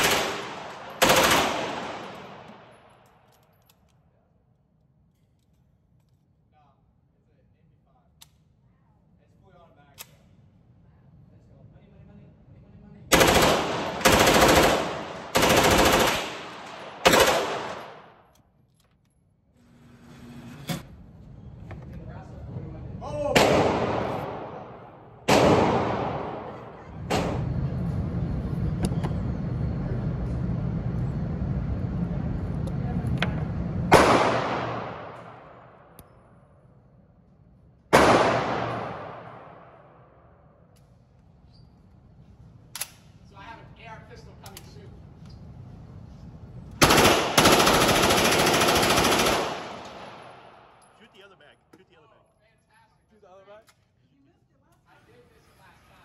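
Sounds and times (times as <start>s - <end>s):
submachine gun bursts echoing: 0.0s - 2.5s, 13.1s - 18.0s, 46.8s - 50.8s
gunshot echoing: 23.4s - 27.4s, 33.9s - 35.5s, 37.9s - 39.9s.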